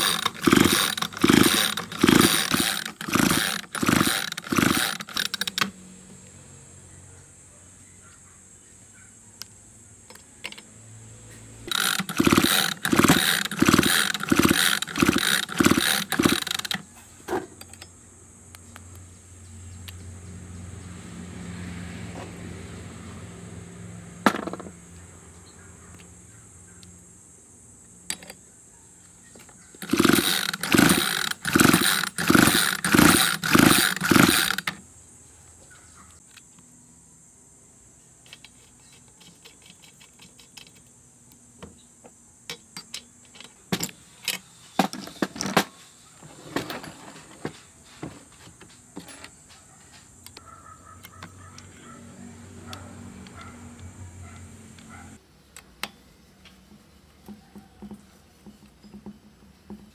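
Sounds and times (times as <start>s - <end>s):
chainsaw recoil starter pulls: 0.0s - 5.8s, 11.6s - 16.9s, 29.8s - 34.8s.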